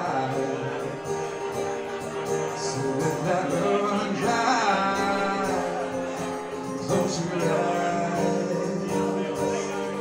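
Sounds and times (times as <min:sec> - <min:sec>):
acoustic guitar: 0:00.0 - 0:10.0
man singing: 0:00.0 - 0:10.0.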